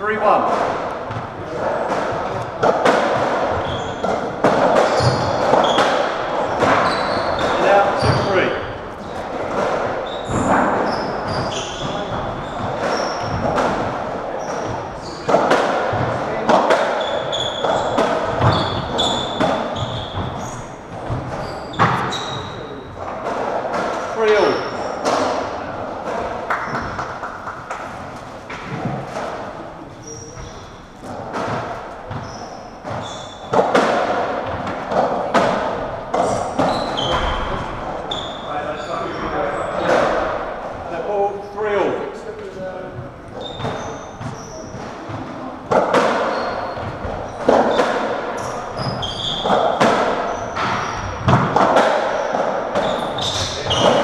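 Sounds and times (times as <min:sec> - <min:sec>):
shoes squeaking on wooden floor: 0:00.0 - 0:41.2, 0:41.8 - 0:54.0
ball hitting rackets and walls: 0:00.1 - 0:41.0, 0:42.9 - 0:54.0.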